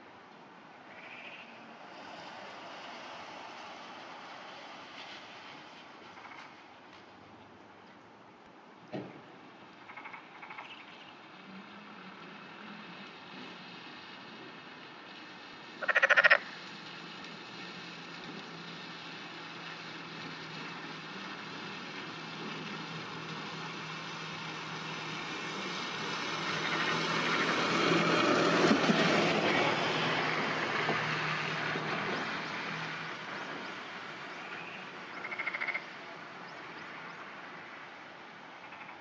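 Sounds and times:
vehicle passing by: 0.6s - 7.0s, 9.8s - 38.9s
frog croak: 0.9s - 1.5s, 9.8s - 11.0s, 15.8s - 16.4s, 35.1s - 35.9s, 38.6s - 39.0s.

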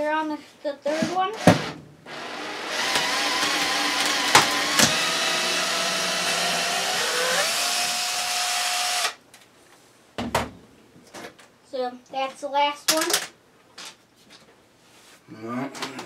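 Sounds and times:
cordless drill motor whining: 2.1s - 9.2s.

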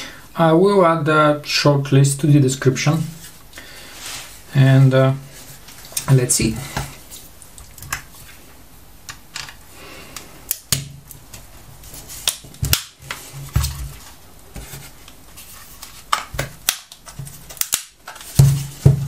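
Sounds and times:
plastic clicks and snaps: 10.2s - 11.4s, 16.1s - 18.2s.

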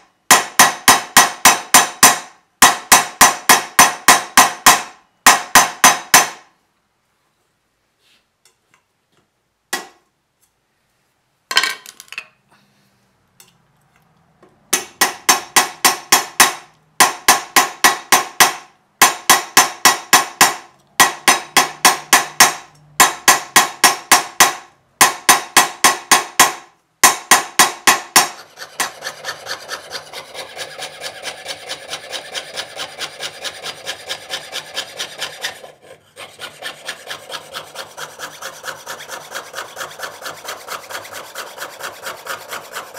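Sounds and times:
saw rasping through copper sheet: 28.2s - 42.9s.

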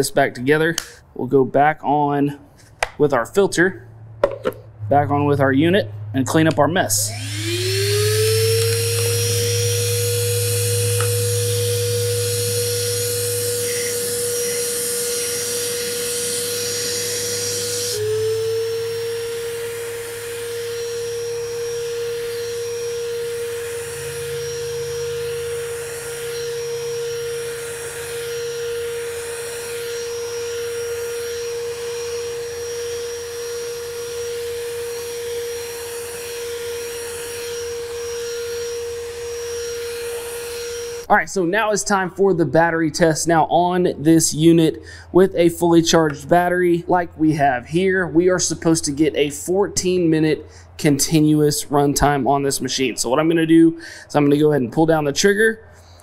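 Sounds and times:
handheld vacuum motor whine: 6.6s - 41.1s.

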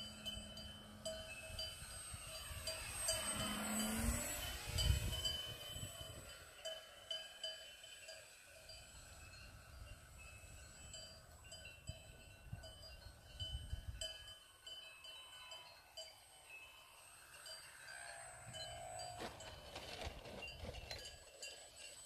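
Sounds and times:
electric motor whine: 0.0s - 12.4s
wind rumbling on microphone: 1.4s - 6.6s, 8.9s - 14.3s
cowbells clanking: 5.1s - 22.0s.

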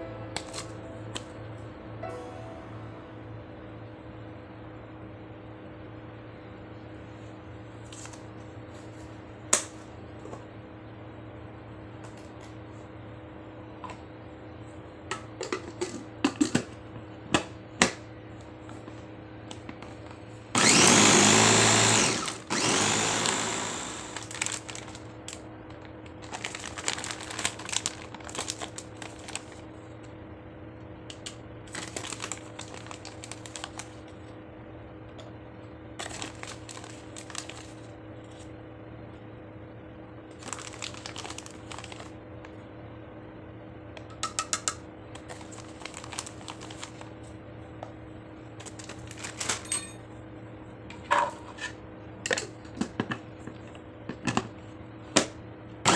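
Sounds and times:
electric mini chopper running: 20.6s - 24.6s
plastic bag crinkling: 24.1s - 25.2s, 26.2s - 29.6s, 31.7s - 34.1s, 36.0s - 37.8s, 40.4s - 42.1s, 45.2s - 47.1s, 48.6s - 49.6s.

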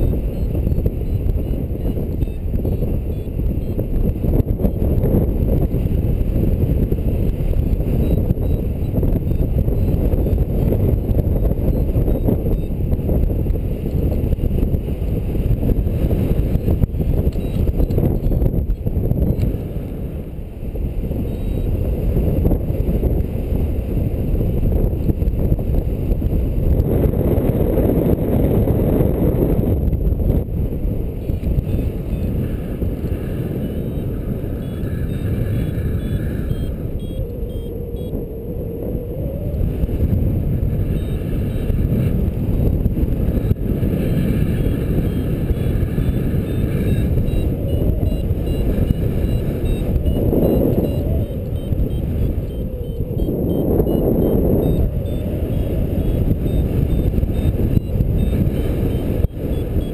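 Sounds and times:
faint variometer beeps: 0.0s - 5.0s, 7.7s - 13.3s, 16.3s - 19.5s, 21.1s - 21.9s, 31.2s - 38.8s, 40.8s - 42.8s, 43.4s - 59.9s
wind rushing over microphone: 0.0s - 59.9s.

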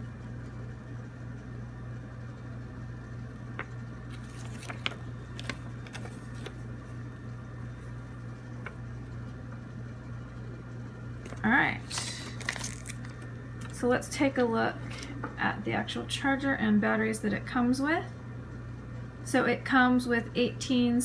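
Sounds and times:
low room tone hum: 0.0s - 21.0s
paper sheet rustling: 3.6s - 7.0s, 11.2s - 13.3s.

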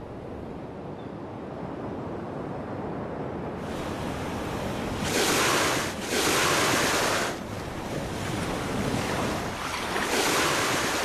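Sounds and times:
sea surf washing ashore: 3.6s - 11.0s.

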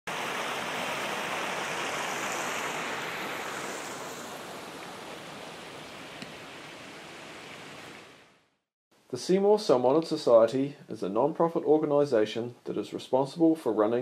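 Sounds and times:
flowing water rushing: 0.1s - 8.4s.

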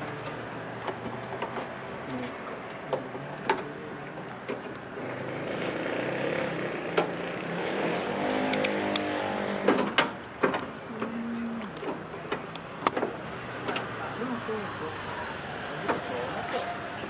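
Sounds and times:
clicks and knocks of parts: 9.6s - 13.9s.

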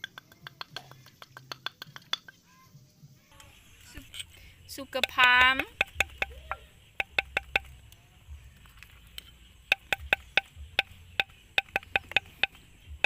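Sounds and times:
metal spoon tapping a mortar: 0.0s - 2.4s, 4.9s - 7.8s, 9.7s - 12.6s.

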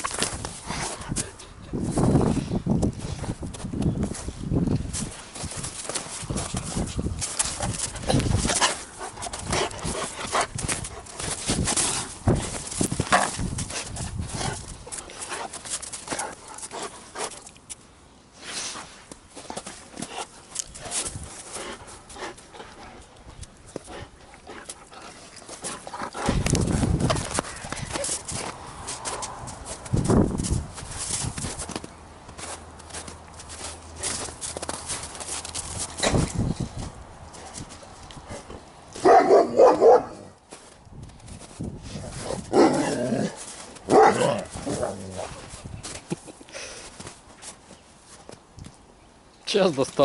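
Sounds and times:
scuffling and knocks: 2.9s - 17.4s, 24.6s - 37.9s
dog barking: 39.0s - 40.2s, 43.9s - 44.4s
dog growling while tugging: 42.2s - 45.4s.

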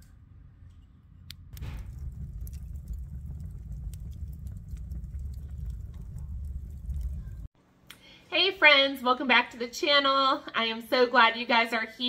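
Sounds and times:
logs crackling and popping: 1.3s - 7.5s
fire rumbling: 1.4s - 7.5s.

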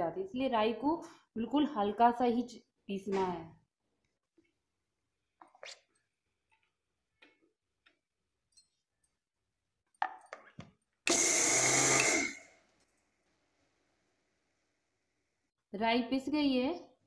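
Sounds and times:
mixer grinder motor burst: 11.1s - 12.5s.

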